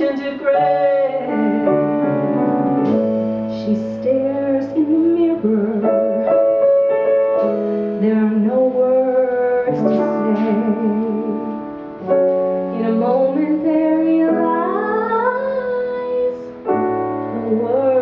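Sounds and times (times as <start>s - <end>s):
women singing: 0.0s - 1.4s
piano accompaniment: 0.0s - 18.0s.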